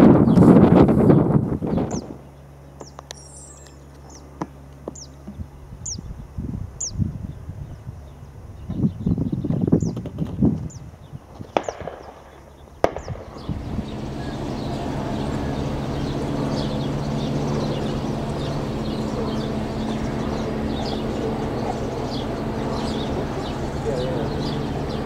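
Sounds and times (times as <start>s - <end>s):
constant low hum: 0.0s - 25.0s
small birds chirping: 0.2s - 25.0s
distant shotgun cracks: 11.6s - 13.5s.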